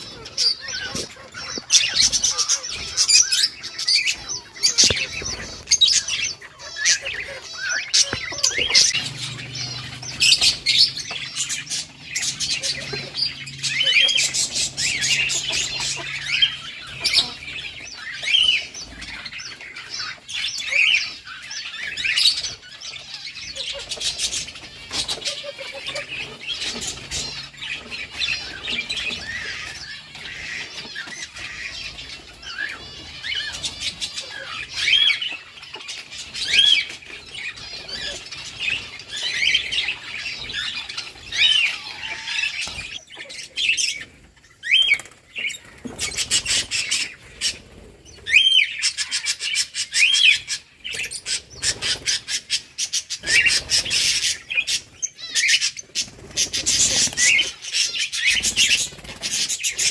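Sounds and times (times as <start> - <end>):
birds chirping and squawking: 0.0 - 59.9.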